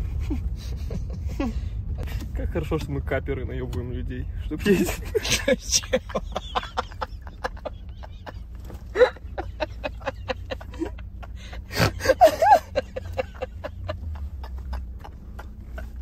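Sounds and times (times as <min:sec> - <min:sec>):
car cabin road rumble: 0:00.0 - 0:16.0
man laughing hard: 0:04.7 - 0:16.0.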